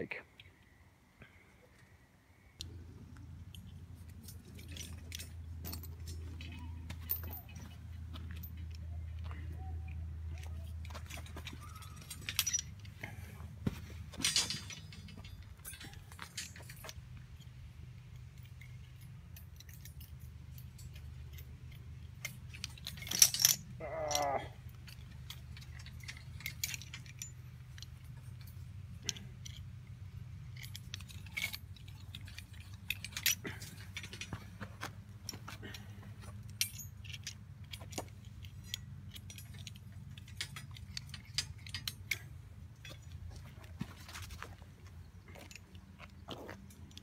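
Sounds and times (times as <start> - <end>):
small metallic clicks and clinks: 2.5 - 47.0
metallic clatter: 10.2 - 47.0.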